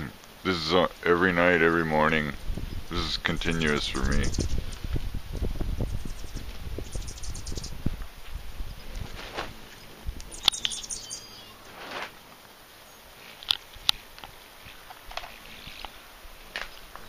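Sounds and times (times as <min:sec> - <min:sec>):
hummingbirds chipping chatter: 0:00.0 - 0:05.0, 0:05.7 - 0:07.9, 0:09.6 - 0:11.8
squeaky twittering: 0:02.7 - 0:04.7, 0:05.9 - 0:07.8, 0:10.3 - 0:11.7
sharp clicks: 0:10.2 - 0:10.9.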